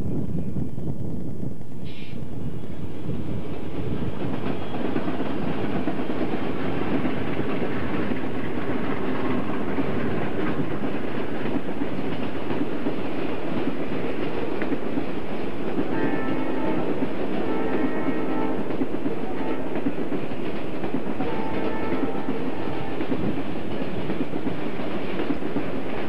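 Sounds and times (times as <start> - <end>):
diesel locomotives passing: 0.0 - 26.0
train wheels clacking on rails: 3.4 - 26.0.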